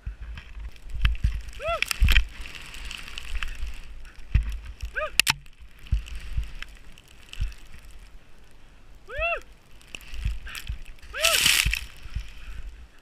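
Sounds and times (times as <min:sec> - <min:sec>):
soft low thumps: 0:00.0 - 0:08.2, 0:10.0 - 0:13.0
skis swishing through powder snow: 0:00.0 - 0:13.0
sharp click: 0:05.2 - 0:05.5.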